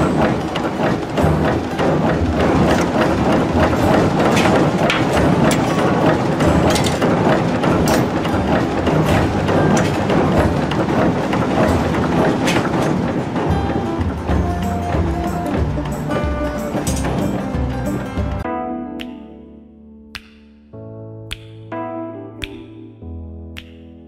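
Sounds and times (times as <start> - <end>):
heavy machinery running: 0.0 - 18.4
metal clanking on metal: 0.0 - 18.4.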